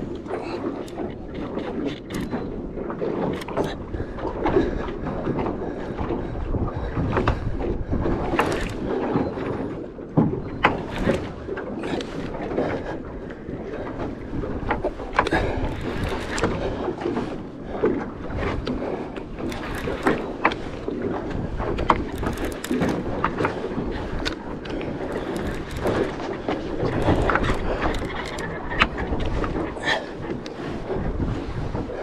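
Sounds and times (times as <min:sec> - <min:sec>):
water against boat hull: 0:00.0 - 0:32.0
wind noise on microphone: 0:00.0 - 0:32.0
sharp clicks and knocks: 0:08.2 - 0:09.5, 0:14.7 - 0:16.6, 0:19.4 - 0:20.9, 0:21.6 - 0:30.6.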